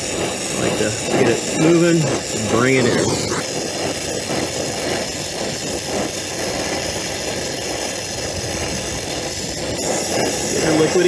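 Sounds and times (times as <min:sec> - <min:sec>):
torch flame hissing: 0:00.0 - 0:11.0.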